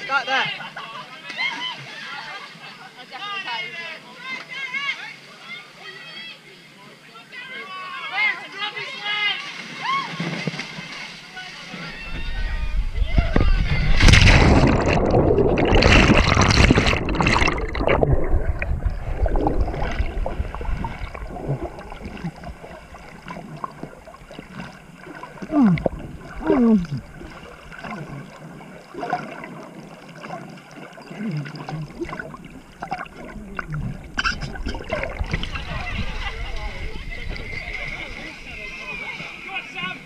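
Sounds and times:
pool water splashing: 7.4 - 40.0
underwater gurgling: 11.9 - 40.0.

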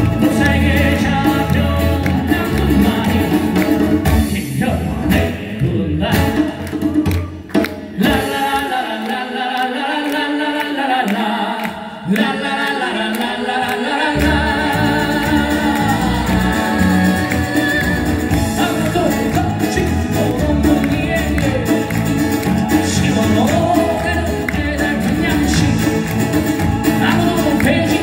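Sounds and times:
voices singing: 0.0 - 6.5, 7.9 - 28.0
cajon: 0.0 - 8.2, 14.2 - 28.0
bass: 0.0 - 8.6, 14.1 - 28.0
electric guitar: 0.0 - 8.6, 14.2 - 28.0
acoustic guitars: 0.0 - 9.2, 12.2 - 28.0.

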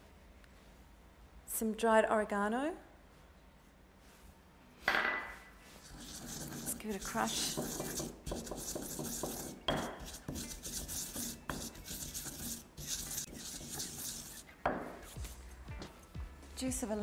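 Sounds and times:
stone pestle grinding in mortar: 5.8 - 15.4
stone knocking on stone: 7.5 - 10.0, 14.6 - 15.0.

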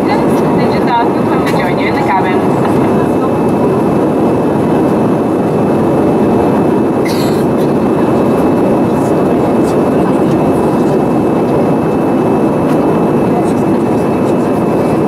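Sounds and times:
jet cabin engine roar: 0.0 - 15.0.

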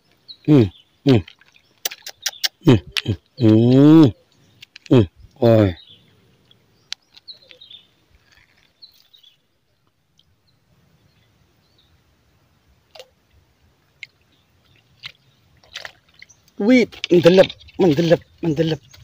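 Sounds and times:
faint bird chirps: 0.1 - 12.1.

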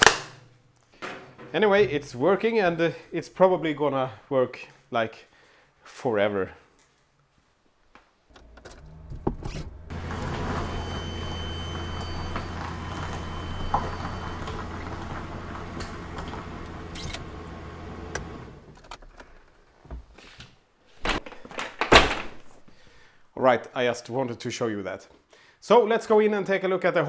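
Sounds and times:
electrical charger humming: 8.3 - 18.8.

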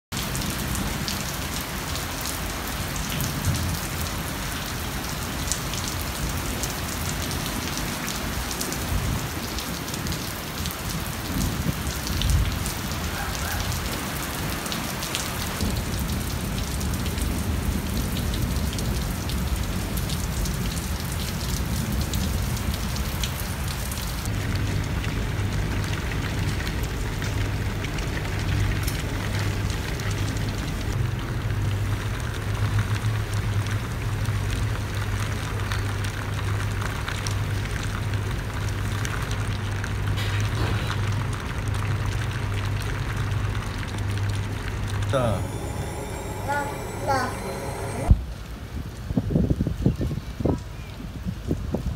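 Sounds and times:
steady rain falling: 0.1 - 51.9
steady low hum: 44.9 - 48.2.

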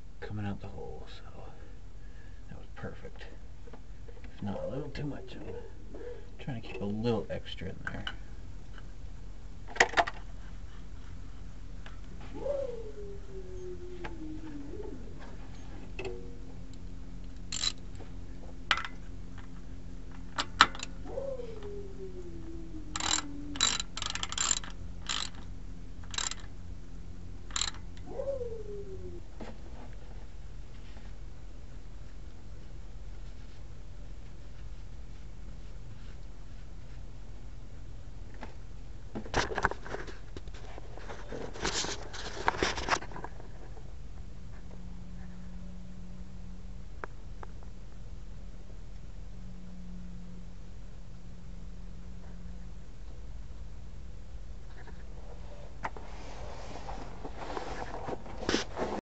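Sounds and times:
low steady hum: 0.0 - 59.0
ratchet wrench clicking: 17.5 - 17.8, 23.0 - 26.5, 27.5 - 27.8
rustling: 54.7 - 59.0.

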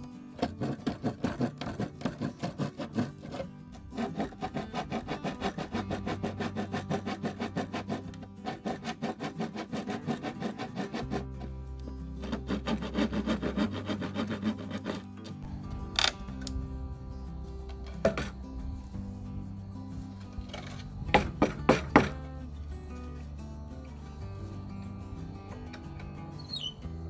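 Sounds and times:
background music with bass: 0.0 - 27.0
hand saw cutting plywood: 0.4 - 11.6, 12.2 - 15.5, 20.5 - 22.2.

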